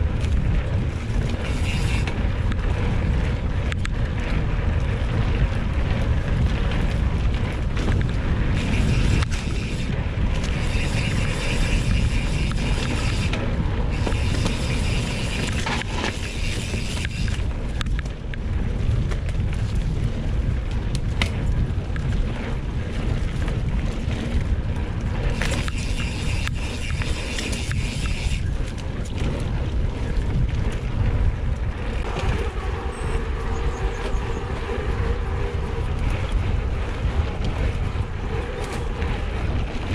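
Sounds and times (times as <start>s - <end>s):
bike tyres rolling: 0.0s - 39.9s
wind rumble on microphone: 0.0s - 39.9s.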